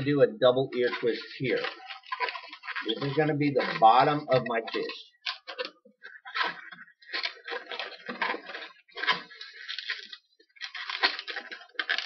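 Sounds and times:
balloons squeaking and rubbing: 0:00.0 - 0:12.0.

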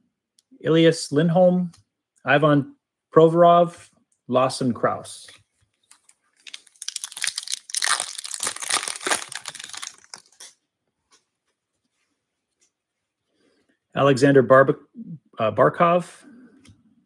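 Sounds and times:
foil wrapper tearing and crinkling: 0:05.9 - 0:10.6.

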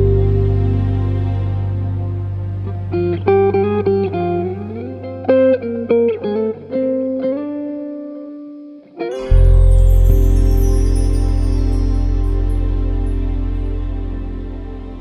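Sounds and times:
plucked guitar notes: 0:00.0 - 0:15.0
low held note: 0:09.1 - 0:15.0.

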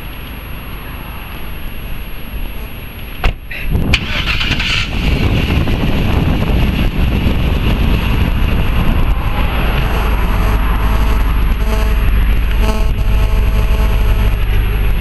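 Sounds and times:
truck engine starting and idling: 0:03.9 - 0:06.1.

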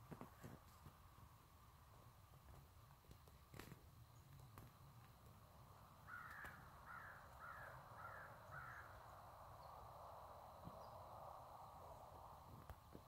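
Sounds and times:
faint steady hiss: 0:00.0 - 0:13.0
bird calling: 0:06.0 - 0:09.2.

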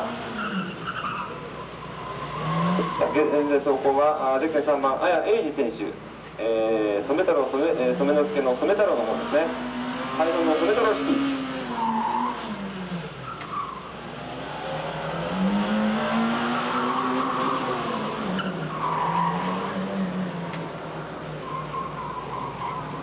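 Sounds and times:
car engine revving: 0:00.0 - 0:04.8, 0:06.7 - 0:23.0
tyres squealing: 0:16.6 - 0:20.0, 0:21.4 - 0:23.0.

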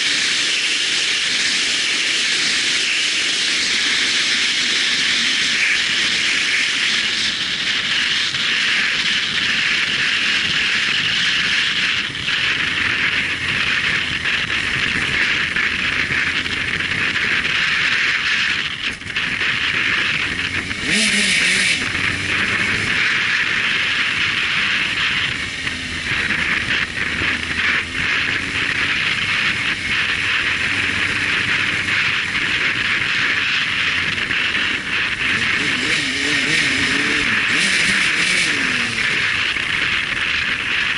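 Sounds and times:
motorcycle engine and road noise: 0:00.0 - 0:40.9.

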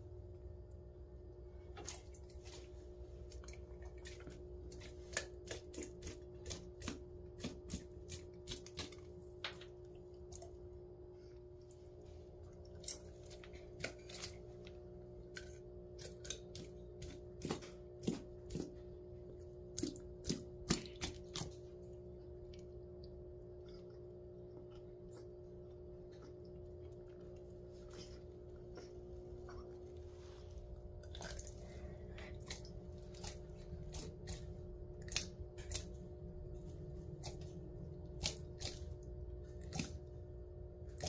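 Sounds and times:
steady low hum: 0:00.0 - 0:41.0
jaws clicking and snapping on meat: 0:03.3 - 0:10.7, 0:12.5 - 0:19.0, 0:19.6 - 0:28.1, 0:30.8 - 0:41.0.

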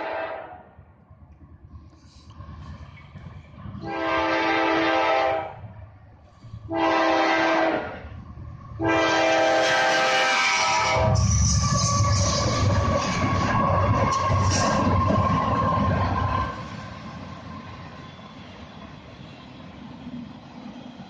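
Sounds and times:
locomotive air horn blasts: 0:00.0 - 0:00.6, 0:03.8 - 0:05.6, 0:06.7 - 0:08.0, 0:08.8 - 0:12.3
train rumble: 0:00.0 - 0:21.0.

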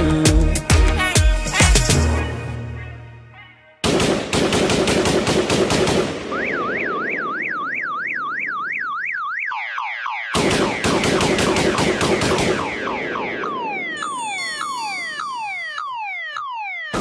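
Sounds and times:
automatic gunfire bursts: 0:03.8 - 0:06.4, 0:10.4 - 0:13.6
electronic alarm warble: 0:06.4 - 0:10.4, 0:12.5 - 0:17.0
falling electronic tones: 0:13.0 - 0:17.0.

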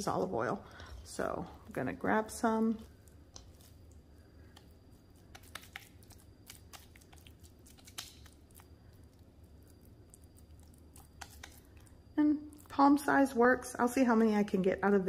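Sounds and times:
small wet clicks: 0:02.8 - 0:12.8
hands patting meat patty: 0:05.3 - 0:08.6.

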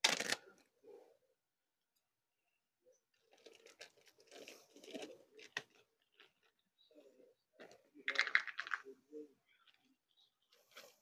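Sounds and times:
plastic bag crinkling: 0:03.2 - 0:06.5.

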